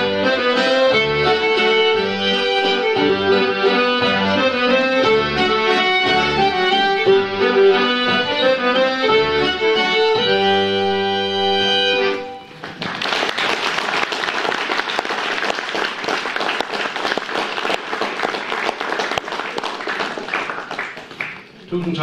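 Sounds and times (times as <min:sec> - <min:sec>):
fiddle and accordions playing: 0:00.0 - 0:12.6
audience applause: 0:12.5 - 0:22.0.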